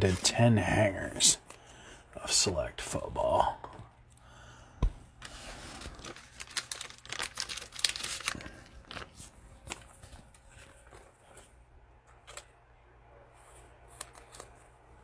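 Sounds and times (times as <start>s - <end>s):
crinkling plastic packaging: 5.6s - 11.0s.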